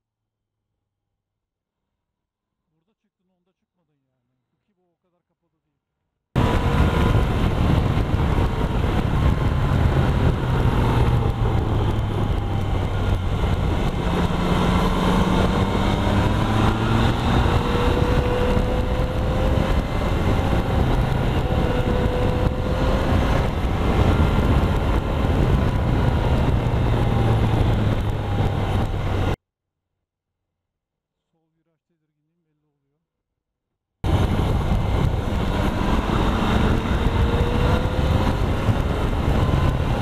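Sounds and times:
motorcycle engine running: 6.4s - 29.4s, 34.0s - 40.0s
wind and road noise: 6.4s - 29.4s, 34.0s - 40.0s.

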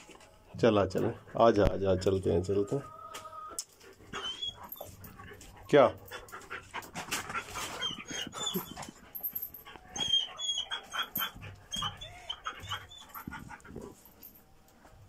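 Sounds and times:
dog whimpering: 4.1s - 5.1s, 7.2s - 13.9s.

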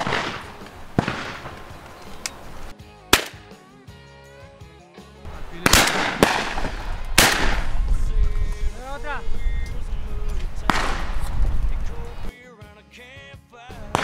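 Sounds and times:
shotgun shots: 0.0s - 1.8s, 3.1s - 3.5s, 5.3s - 7.8s, 10.6s - 11.3s, 13.8s - 14.0s
background music: 0.0s - 14.0s.

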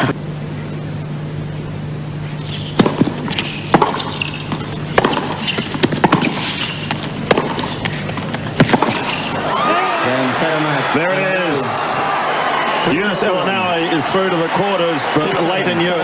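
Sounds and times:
low background hum: 0.0s - 16.0s
sneaker squeaks: 2.3s - 9.5s
racquets striking tennis ball: 2.4s - 9.5s.

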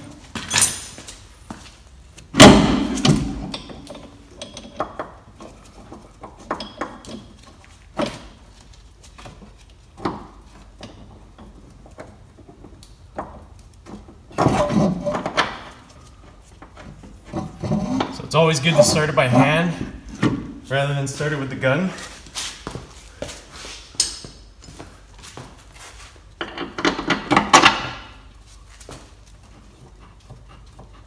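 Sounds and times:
metal tools clanking: 17.4s - 20.1s.

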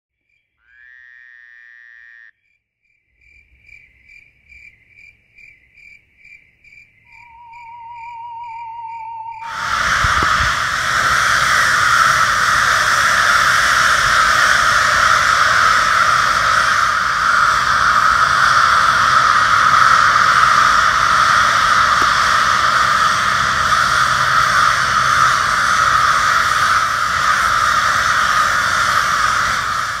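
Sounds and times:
flock of crows cawing: 9.4s - 30.0s.

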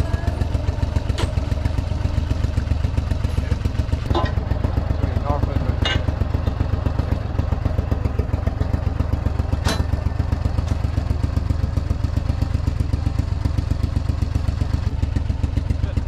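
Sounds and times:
boat motor running: 0.0s - 16.0s.

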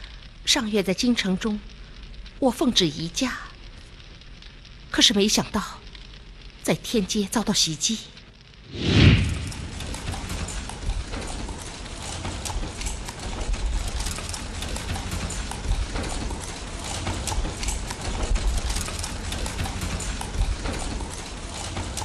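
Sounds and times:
low rumble: 8.6s - 11.6s.

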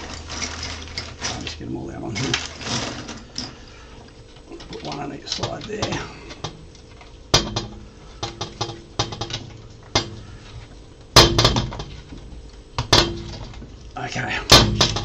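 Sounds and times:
plastic parts clicking and knocking: 4.6s - 10.6s, 11.2s - 13.8s, 14.5s - 15.0s.

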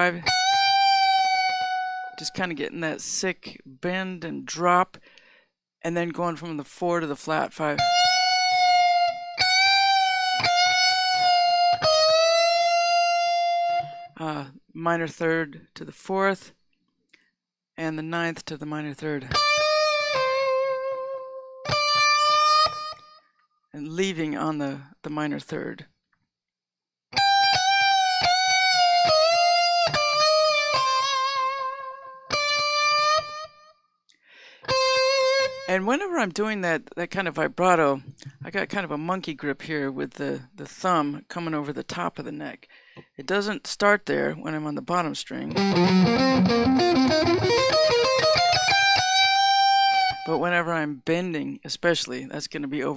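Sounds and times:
electric guitar bending notes: 0.0s - 2.2s, 7.8s - 14.2s, 19.3s - 23.2s, 27.2s - 33.7s, 34.6s - 35.7s, 45.5s - 50.3s.

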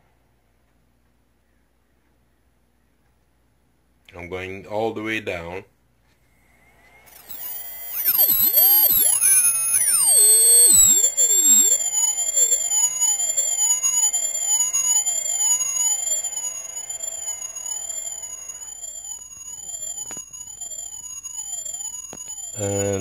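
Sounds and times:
warbling electronic tone: 7.0s - 23.0s.

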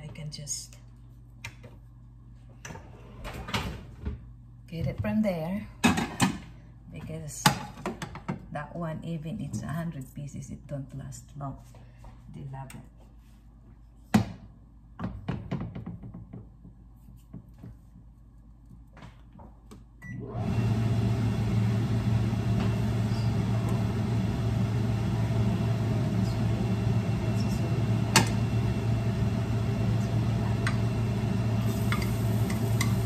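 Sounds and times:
range hood fan humming: 17.8s - 33.0s.

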